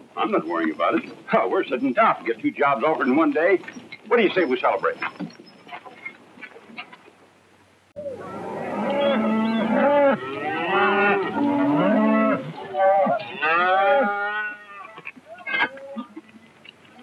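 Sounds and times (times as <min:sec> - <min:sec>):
cattle mooing: 0:08.2 - 0:16.2.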